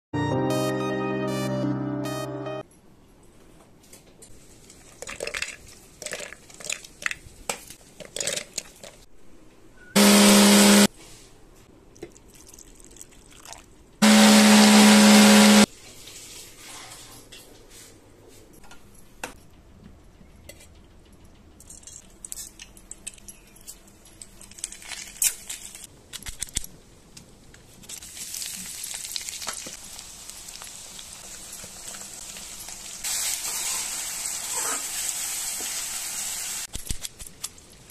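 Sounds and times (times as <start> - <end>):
electric mixer grinder running: 10.0 - 10.9, 14.0 - 15.7
onions sizzling in oil: 28.0 - 36.7.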